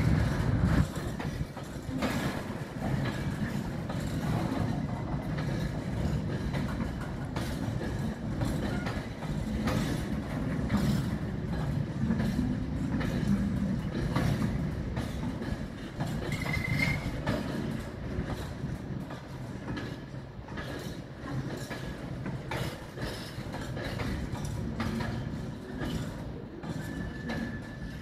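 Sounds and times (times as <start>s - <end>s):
train wagons rumbling past: 0.0s - 28.0s
wheels clattering over rail joints: 0.0s - 28.0s
high wheel squeal: 16.3s - 17.3s.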